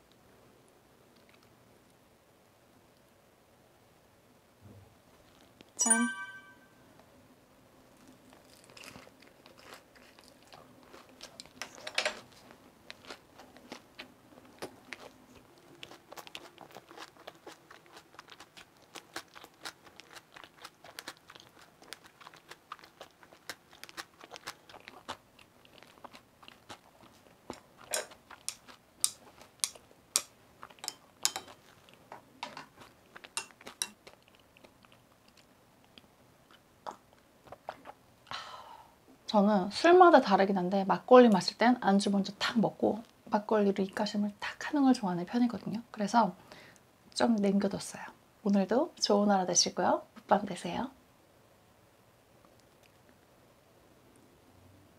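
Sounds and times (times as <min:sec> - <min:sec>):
close-up chewing: 0:07.9 - 0:38.0, 0:52.4 - 0:53.3.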